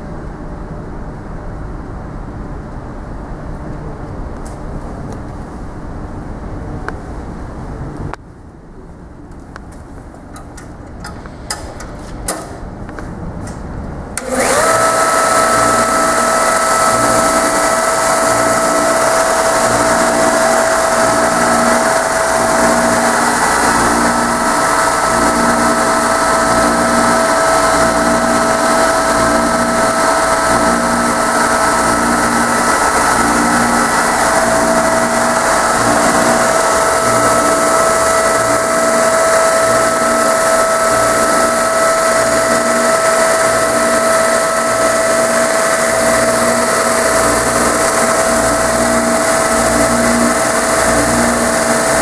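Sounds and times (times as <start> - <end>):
belt sander whine: 14.2 - 52.0.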